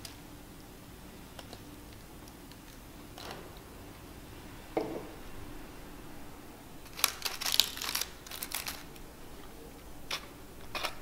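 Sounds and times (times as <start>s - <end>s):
fried food crackling: 6.8s - 9.2s.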